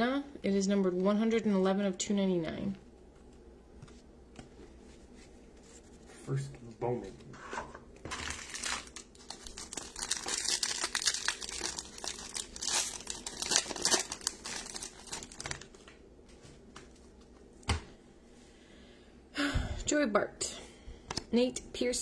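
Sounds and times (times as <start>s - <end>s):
foil wrapper crinkling: 8.1s - 16.0s.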